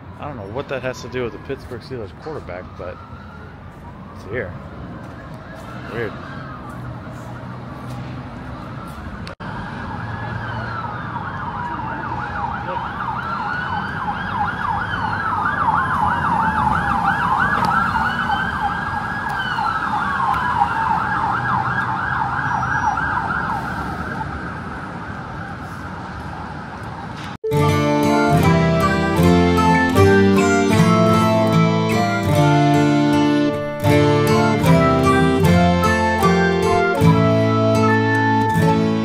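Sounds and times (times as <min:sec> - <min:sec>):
siren wailing: 0:00.0 - 0:07.8, 0:08.4 - 0:39.0
traffic rumble: 0:00.0 - 0:39.0
siren fast yelp: 0:00.3 - 0:04.5, 0:09.4 - 0:24.4, 0:27.5 - 0:39.0.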